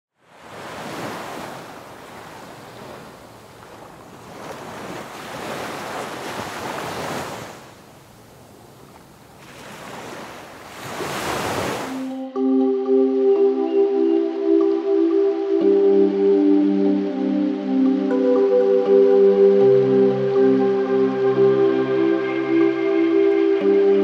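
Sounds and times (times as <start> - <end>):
waves breaking on shore: 0.2 - 12.2.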